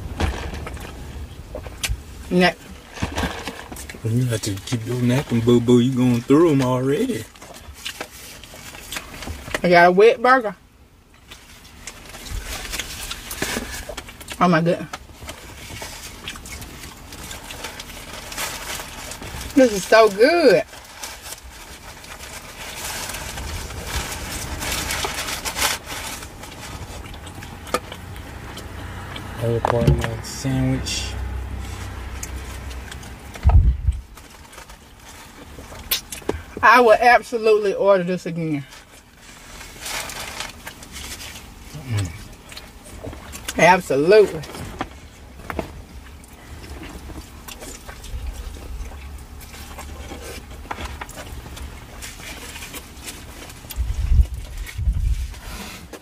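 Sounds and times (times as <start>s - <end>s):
biting and chewing food: 0.0s - 9.6s, 11.0s - 30.4s, 31.2s - 36.6s, 38.7s - 43.6s, 44.2s - 56.0s
low steady hum: 0.0s - 56.0s
low steady rumble: 0.0s - 56.0s
paper wrapper rustling: 11.2s - 14.3s, 15.0s - 27.7s, 31.5s - 36.4s, 38.6s - 43.6s
chewing and mouth smacks: 15.0s - 18.1s, 26.5s - 29.4s, 35.3s - 36.4s.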